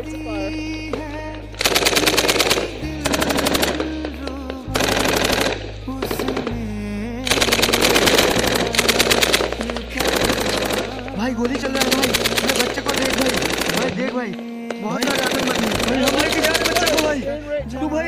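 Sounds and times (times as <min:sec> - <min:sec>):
low drone: 0:00.0 - 0:13.8
music: 0:00.0 - 0:18.0
automatic gunfire bursts: 0:00.9 - 0:17.2.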